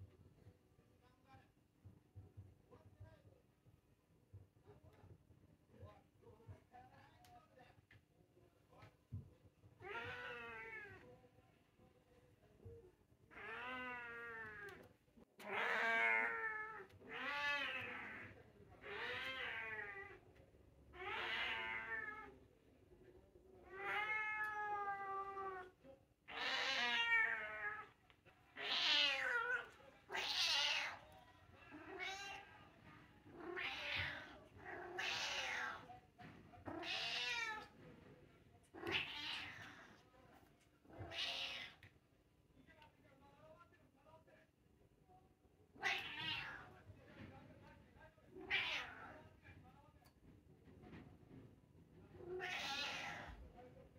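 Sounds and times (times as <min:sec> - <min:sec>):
cat meowing: 0:09.8 - 0:11.1, 0:13.3 - 0:20.2, 0:20.9 - 0:22.4, 0:23.6 - 0:28.0, 0:28.6 - 0:32.6, 0:33.3 - 0:35.9, 0:36.6 - 0:37.8, 0:38.8 - 0:40.0, 0:40.9 - 0:41.9, 0:45.8 - 0:46.7, 0:48.4 - 0:49.2, 0:52.2 - 0:53.4.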